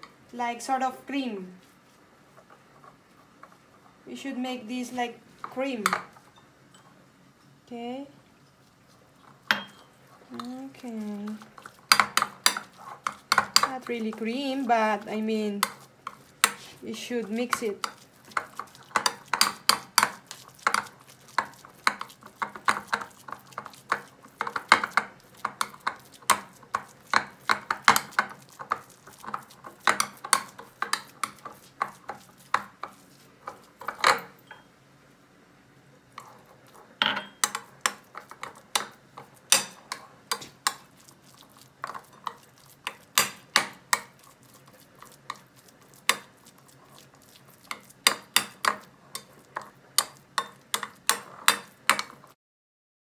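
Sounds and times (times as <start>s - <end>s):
spoon scraping ceramic bowl: 9.2s - 34.7s, 36.2s - 52.3s.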